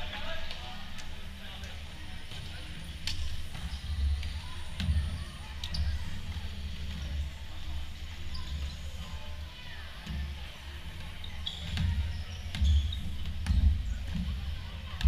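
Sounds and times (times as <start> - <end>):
sneaker squeaks: 2.3 - 9.3, 10.0 - 14.5.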